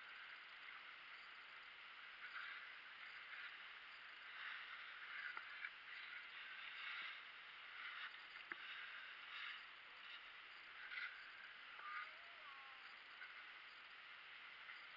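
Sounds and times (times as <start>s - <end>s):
skis scraping on snow: 2.2s - 12.1s.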